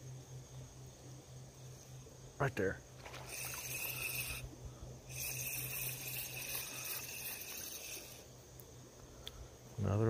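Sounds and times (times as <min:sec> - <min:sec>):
spinning reel whirring: 0:03.1 - 0:04.5, 0:05.1 - 0:08.3.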